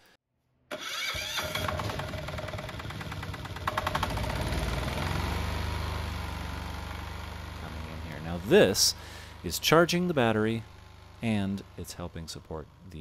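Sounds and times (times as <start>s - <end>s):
diesel generator starting and running: 0.7s - 13.0s.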